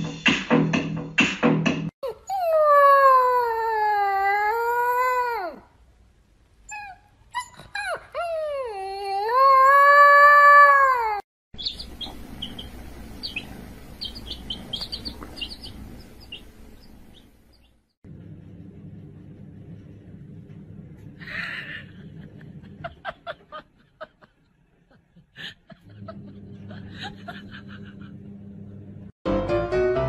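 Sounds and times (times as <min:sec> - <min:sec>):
puppy yelping and howling: 0:02.0 - 0:05.6, 0:06.7 - 0:11.2
chicks peeping: 0:11.6 - 0:17.8.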